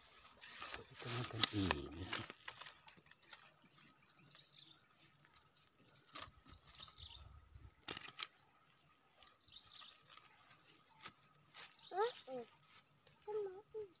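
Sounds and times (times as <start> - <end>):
faint bird chirps: 3.0 - 14.0
fishing pole and line clicks: 5.3 - 6.4.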